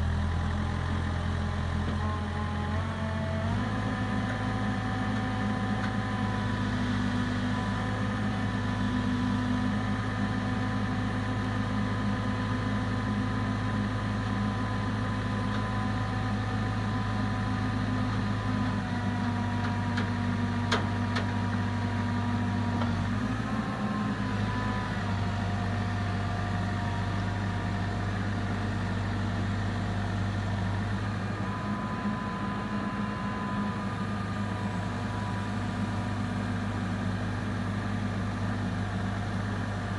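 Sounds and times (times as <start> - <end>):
diesel engine running: 0.0 - 39.9
hydraulic whine: 30.6 - 38.0.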